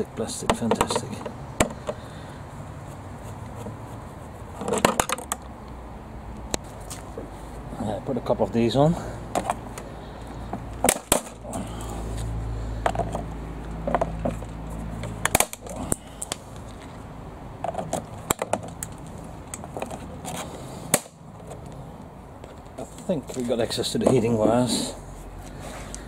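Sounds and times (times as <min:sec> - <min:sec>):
plastic cracking and snapping: 0:15.1 - 0:16.4.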